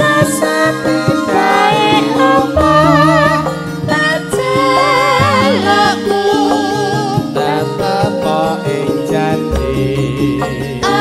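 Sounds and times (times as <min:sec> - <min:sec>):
woman singing: 0:00.0 - 0:08.4, 0:10.8 - 0:11.0
keyboard accompaniment with beat: 0:00.0 - 0:11.0.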